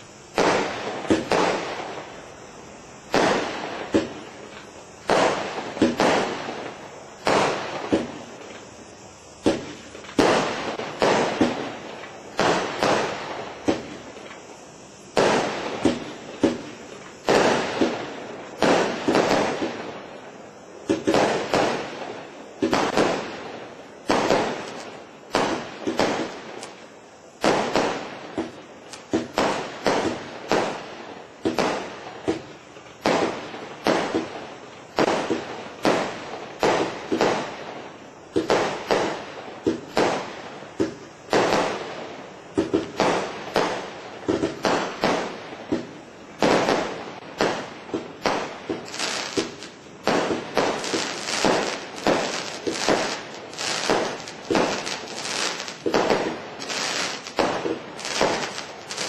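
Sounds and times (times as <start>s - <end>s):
firework shots banging: 0.0s - 2.1s, 3.0s - 8.7s, 9.4s - 20.0s, 20.8s - 26.8s, 31.4s - 37.5s, 42.5s - 59.0s.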